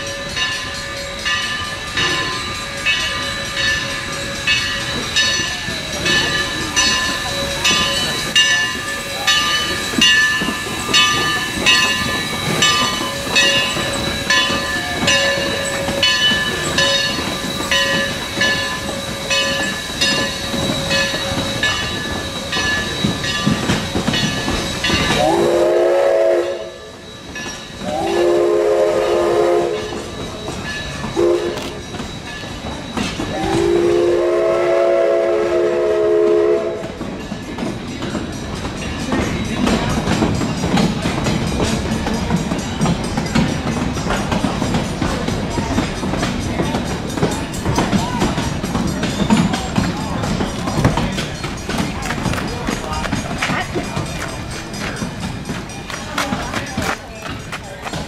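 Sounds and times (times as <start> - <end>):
locomotive bell ringing: 0.0 - 58.0
steam whistle blasts: 25.1 - 27.1, 27.8 - 30.1, 31.2 - 31.8, 33.3 - 37.0.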